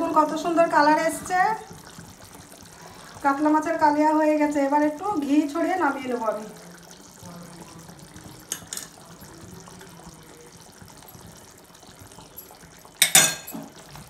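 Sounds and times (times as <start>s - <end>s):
curry simmering and bubbling: 0.0s - 14.0s
spoon clattering against pan: 8.4s - 9.0s, 12.1s - 13.8s.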